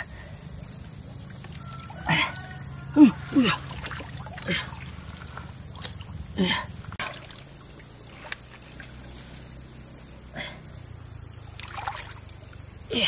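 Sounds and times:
water pump engine hum: 0:00.0 - 0:13.0
hands sloshing in muddy water: 0:03.1 - 0:09.6, 0:11.4 - 0:12.5.

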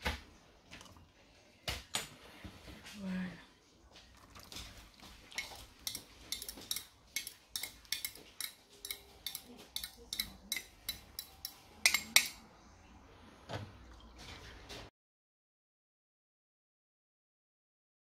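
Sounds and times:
fork clinking on glass: 0:05.4 - 0:12.4.

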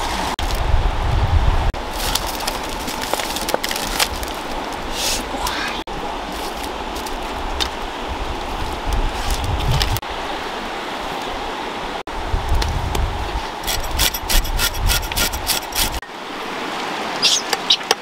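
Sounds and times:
flowing river: 0:00.0 - 0:18.0
knife scraping fish scales: 0:13.7 - 0:16.0.

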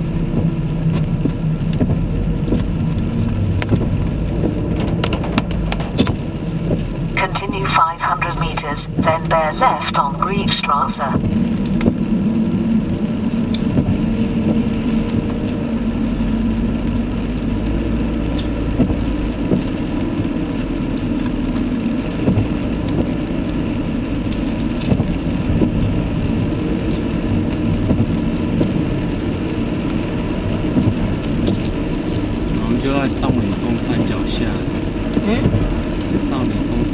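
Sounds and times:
car engine and tyre noise: 0:00.0 - 0:36.9.

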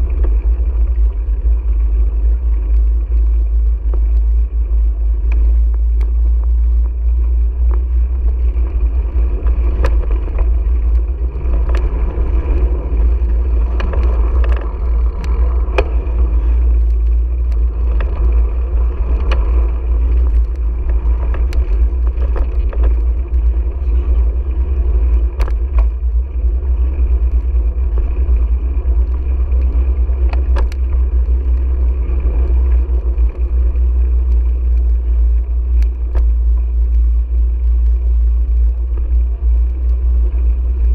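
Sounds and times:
sharp clicks and knocks: 0:00.0 - 0:40.9
wind rumble on microphone: 0:00.0 - 0:40.9.

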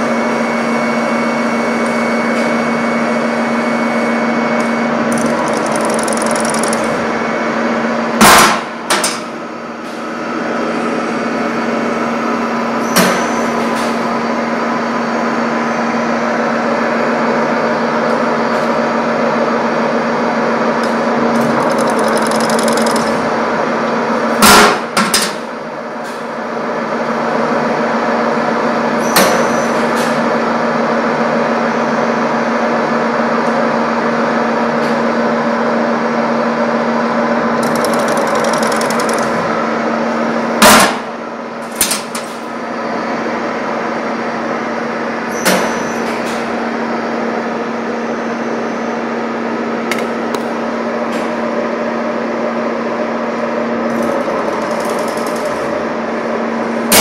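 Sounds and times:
machine humming: 0:04.8 - 0:07.9, 0:21.0 - 0:23.6, 0:37.4 - 0:40.0.

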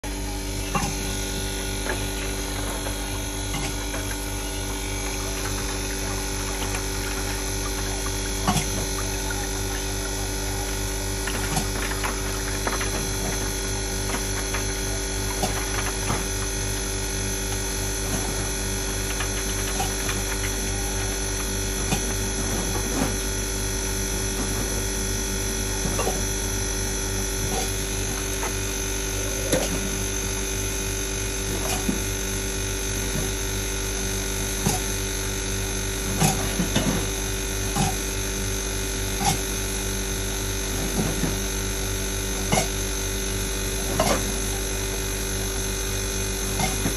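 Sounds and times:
ice machine humming: 0:00.0 - 0:46.9.

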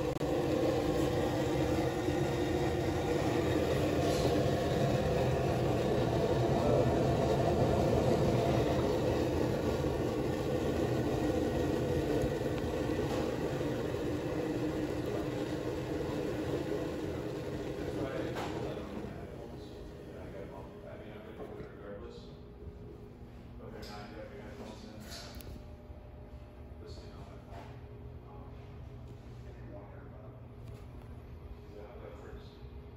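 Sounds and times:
gas burner flame rushing: 0:00.0 - 0:20.6.

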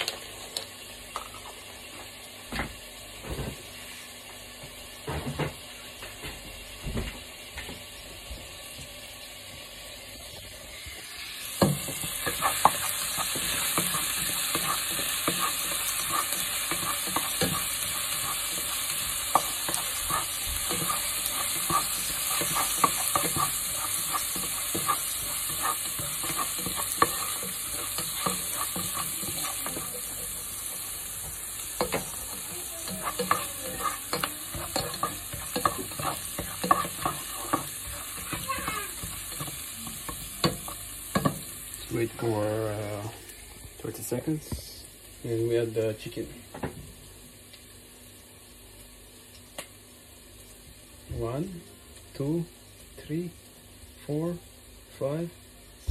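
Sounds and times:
garlic sizzling in hot oil: 0:00.0 - 0:55.9
spatula scraping pan: 0:11.7 - 0:41.4.

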